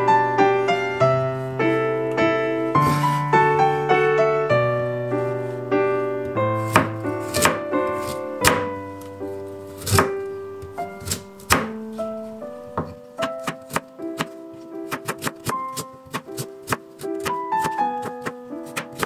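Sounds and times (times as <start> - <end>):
soft piano music: 0.0 - 19.0
knife chopping on cutting board: 6.6 - 8.7, 9.8 - 10.1, 11.0 - 11.8, 12.8 - 19.0.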